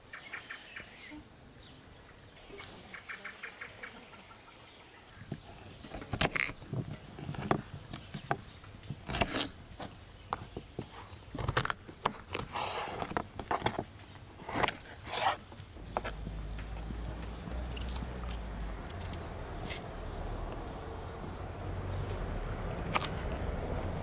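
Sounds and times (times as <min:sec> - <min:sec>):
knife scraping: 0:09.0 - 0:09.6, 0:14.4 - 0:15.5.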